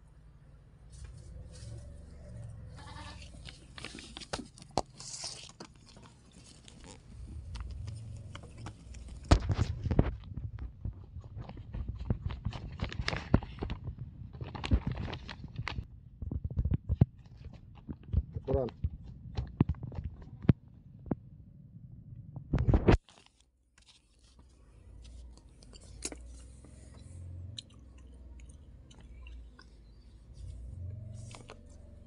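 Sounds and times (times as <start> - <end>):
rustling and clicks of handling: 3.2 - 21.2, 22.5 - 32.0.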